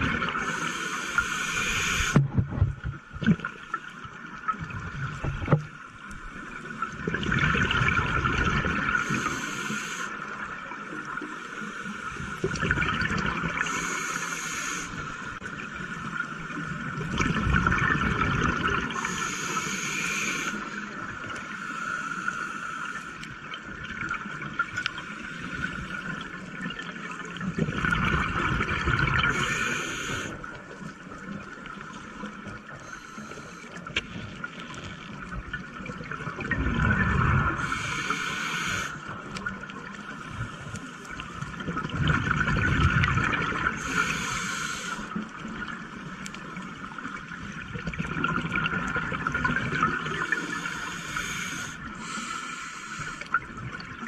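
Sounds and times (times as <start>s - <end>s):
regulator hiss on inhale: 0.4s - 2.2s, 9.0s - 10.4s, 11.2s - 12.5s, 13.6s - 15.4s, 18.9s - 23.4s, 24.9s - 26.1s, 29.2s - 30.5s, 31.8s - 35.0s, 37.5s - 39.2s, 43.8s - 45.2s, 50.2s - 53.5s
bubbles rushing on exhale: 7.0s - 9.0s, 12.4s - 13.6s, 17.0s - 19.0s, 26.7s - 29.4s, 35.6s - 37.7s, 41.4s - 43.8s, 47.6s - 50.6s.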